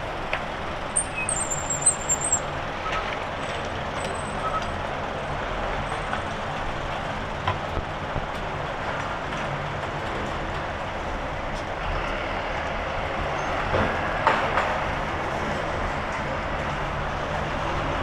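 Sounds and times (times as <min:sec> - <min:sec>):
passing traffic: 0:00.0 - 0:18.0
brief high squeal: 0:01.0 - 0:03.0.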